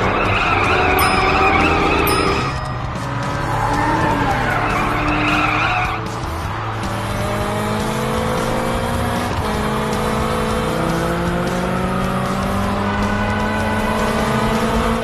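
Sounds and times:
tyres screeching: 0.0s - 7.5s
background music: 0.0s - 15.0s
car engine revving: 0.0s - 15.0s.

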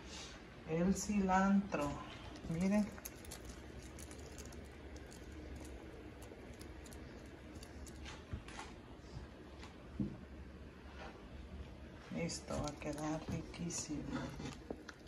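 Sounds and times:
low steady hum: 0.0s - 15.0s
soup clicking and popping: 2.3s - 8.1s.

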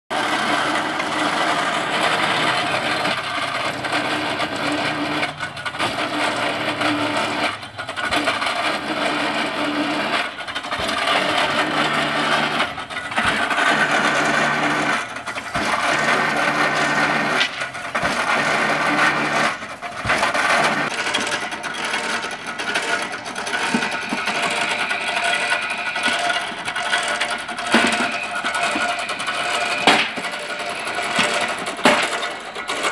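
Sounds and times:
machine hum: 0.1s - 32.9s
metallic rattle: 0.9s - 32.9s.

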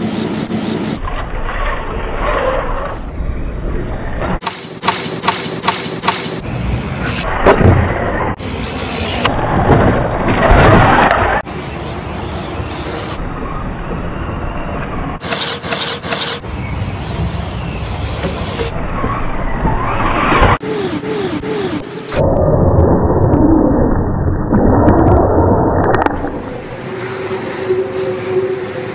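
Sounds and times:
rc car motor running: 15.2s - 16.4s.

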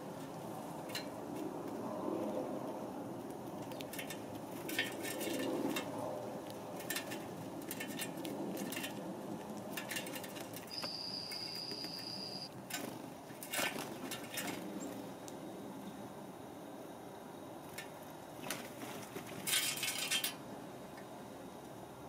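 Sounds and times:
beaks clicking on metal feeder: 9.6s - 15.0s.

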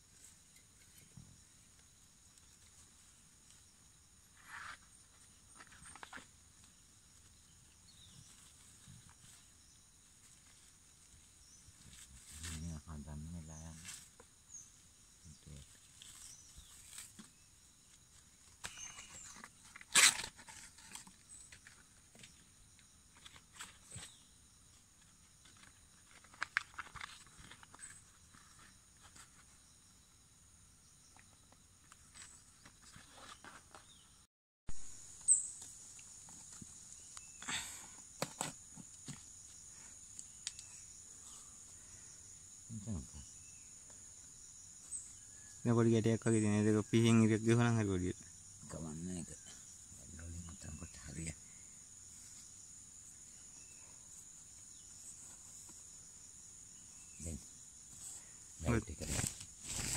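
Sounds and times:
dry palm leaves crackling: 10.2s - 12.8s, 58.6s - 59.9s.

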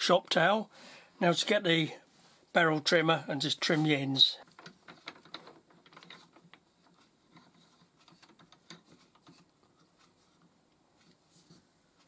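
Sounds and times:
faint clicks and taps: 4.4s - 12.0s.

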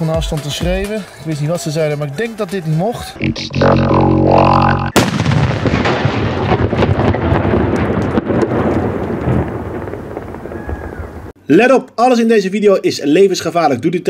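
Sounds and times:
crackling rumble: 3.3s - 11.4s
firework bang: 5.0s - 11.3s.

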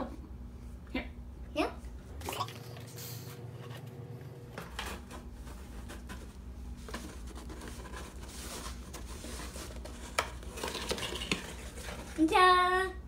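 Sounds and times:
cardboard box scratching: 6.9s - 12.2s.

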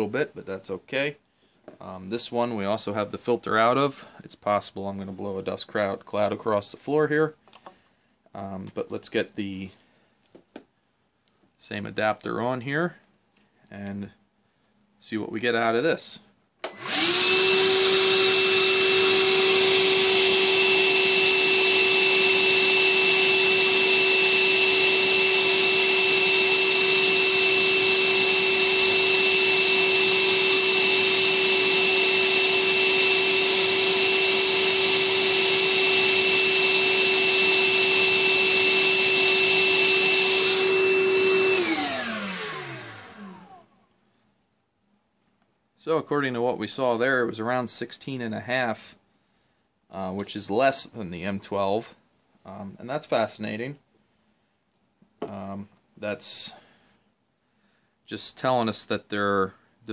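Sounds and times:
vacuum motor whining: 16.6s - 43.6s.

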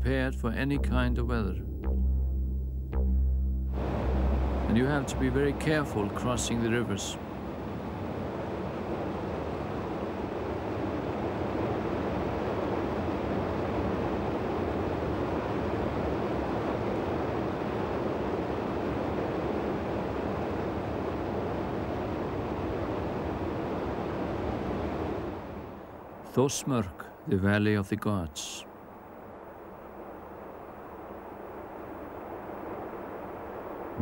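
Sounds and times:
river water rushing: 3.8s - 26.5s.

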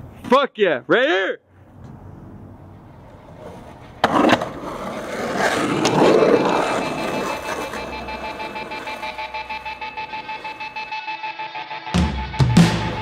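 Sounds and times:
skateboard wheels rolling: 1.8s - 11.0s
skateboard slapping pavement: 3.1s - 10.7s.

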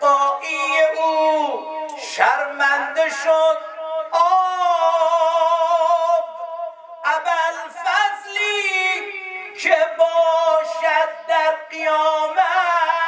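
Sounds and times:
man chanting into a microphone: 0.0s - 13.0s.

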